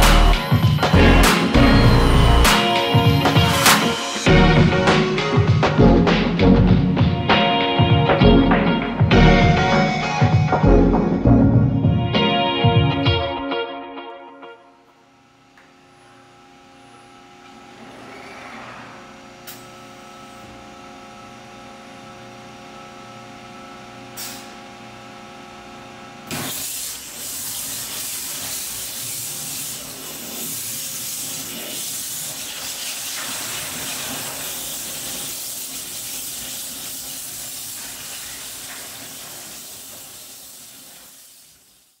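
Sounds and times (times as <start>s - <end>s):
hiss of water spray and cutting: 26.3s - 42.0s.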